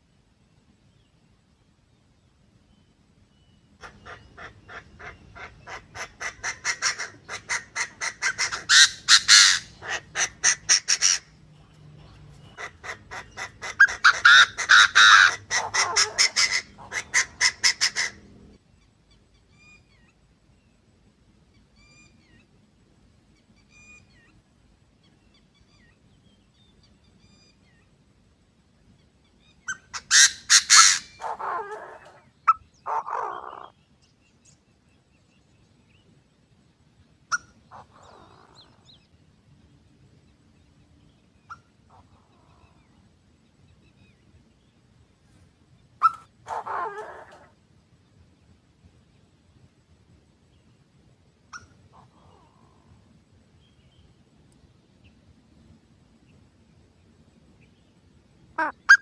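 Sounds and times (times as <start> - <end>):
francolin calls: 3.3 - 18.2, 46.0 - 47.6, 51.5 - 54.0.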